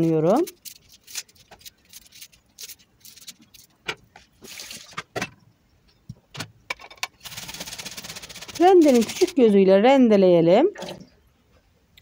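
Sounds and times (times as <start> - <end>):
onion skin crackling when peeled: 0.0 - 3.8.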